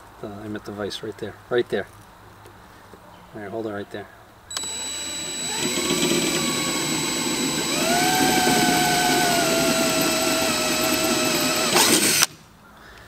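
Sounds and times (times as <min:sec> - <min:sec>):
cordless drill motor whine: 0:04.5 - 0:12.3.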